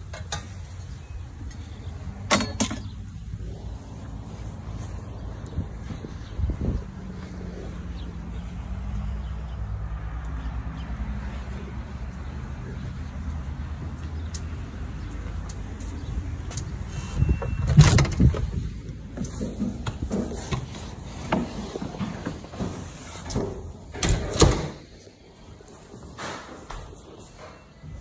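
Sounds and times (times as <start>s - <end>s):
wind rumbling on microphone: 3.0s - 8.5s, 16.1s - 21.2s.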